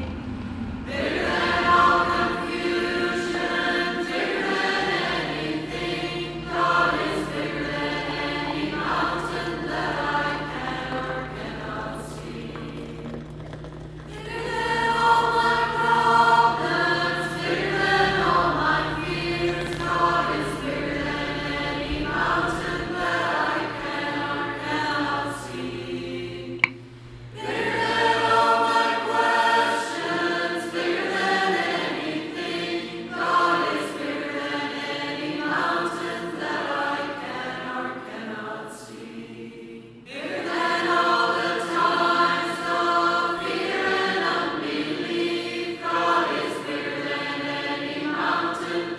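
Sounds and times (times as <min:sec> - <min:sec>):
choir singing: 0:00.0 - 0:13.0, 0:14.1 - 0:48.9.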